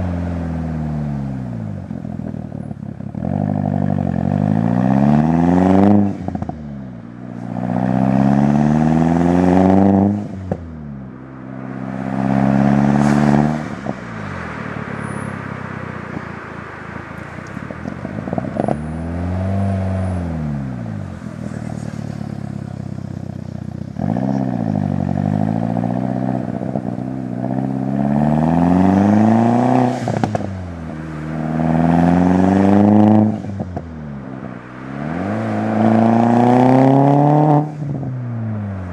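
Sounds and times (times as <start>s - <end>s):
turbocharged car engine revving: 0.0s - 16.2s, 17.2s - 38.9s.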